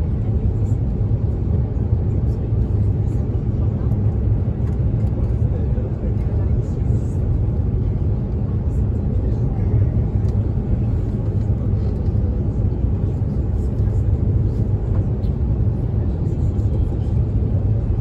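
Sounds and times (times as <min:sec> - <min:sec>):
airplane cabin rumble: 0:00.0 - 0:18.0.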